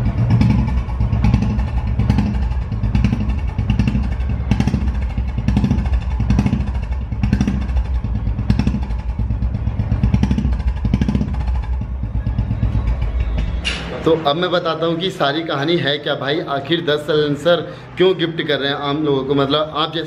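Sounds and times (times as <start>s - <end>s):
motorcycle engine idling: 0.0s - 14.9s.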